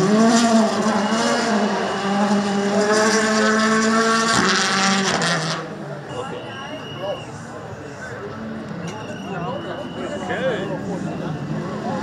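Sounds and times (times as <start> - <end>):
rally car engine at high revs: 0.0 - 6.1, 10.6 - 12.0.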